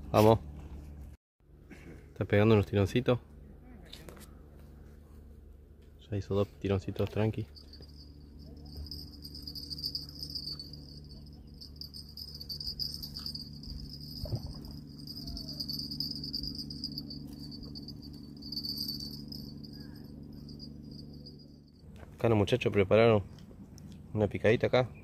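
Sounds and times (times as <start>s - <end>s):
steady low hum: 0.0s - 25.0s
insects trilling: 7.6s - 21.2s.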